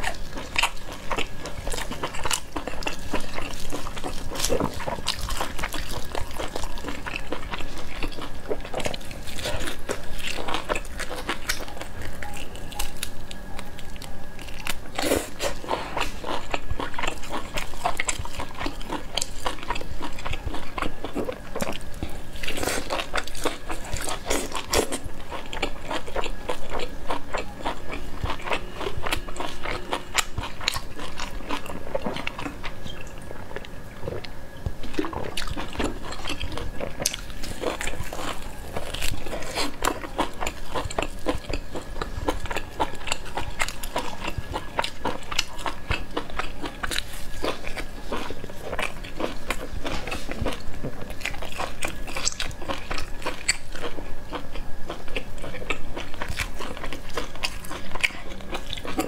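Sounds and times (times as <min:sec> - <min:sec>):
biting and chewing meat: 0:00.0 - 0:59.0.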